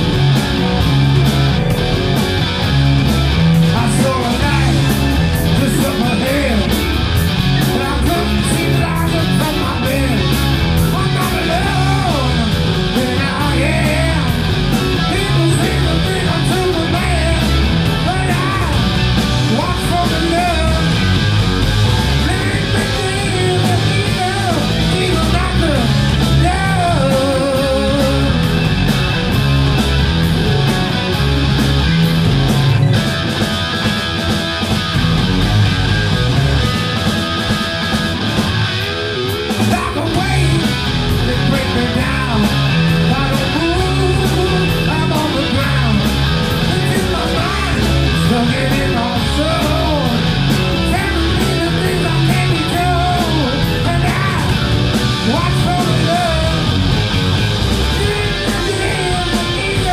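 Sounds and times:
bass guitar: 0.0s - 59.9s
electric guitars: 0.0s - 59.9s
man singing: 3.6s - 6.9s, 7.6s - 21.1s, 22.2s - 28.5s, 39.6s - 50.2s, 50.8s - 54.6s, 55.2s - 56.7s, 57.8s - 59.9s.

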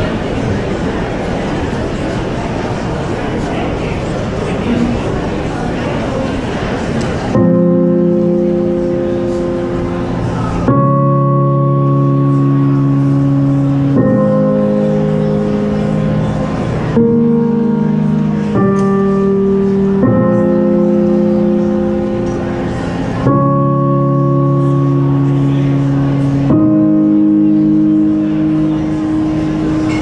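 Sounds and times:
keyboard playing held chords: 6.6s - 30.0s.

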